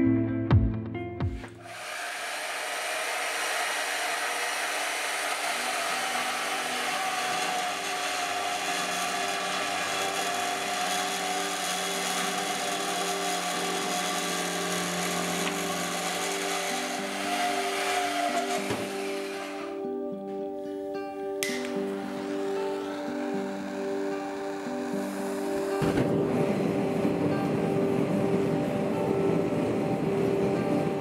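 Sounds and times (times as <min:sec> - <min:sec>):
band saw cutting steel: 0:01.5 - 0:19.9, 0:21.4 - 0:27.6.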